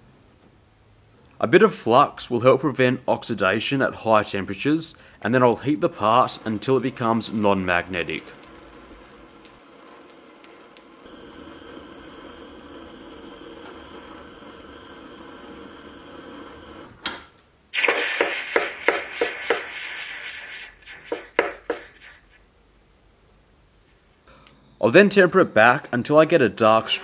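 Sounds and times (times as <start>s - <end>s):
gas torch hissing: 5.8s - 16.9s, 17.7s - 22.2s
hot metal sizzling in liquid: 6.1s - 16.9s, 17.8s - 21.1s.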